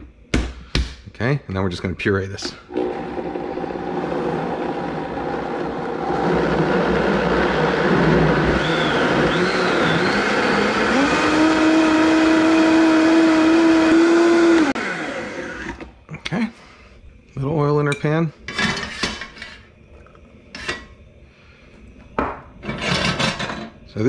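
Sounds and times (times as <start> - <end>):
blender motor whining: 2.7 - 15.9.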